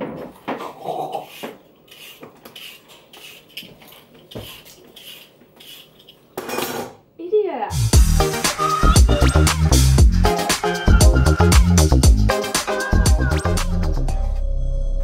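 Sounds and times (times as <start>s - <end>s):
music with heavy beat: 7.8s - 14.3s.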